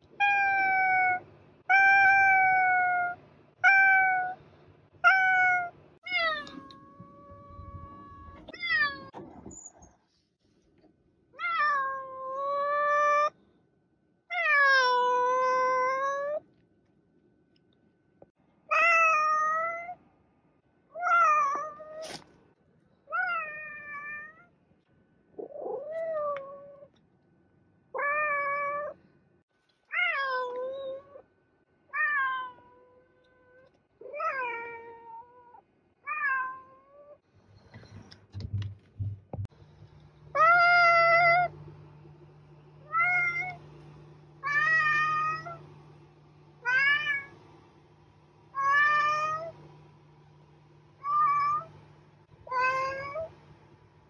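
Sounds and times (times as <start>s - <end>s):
low knocks: 38.3s - 39.6s.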